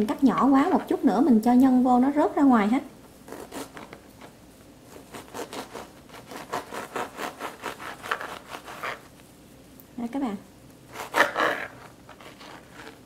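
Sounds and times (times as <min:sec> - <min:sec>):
knife sawing through bread crust: 0:03.3 - 0:03.9, 0:04.9 - 0:09.1, 0:10.9 - 0:13.0.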